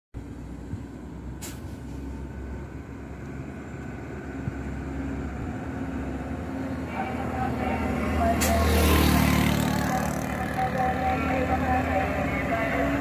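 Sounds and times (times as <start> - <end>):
truck diesel engine running: 0.2 - 13.0
short hiss: 1.4 - 2.0.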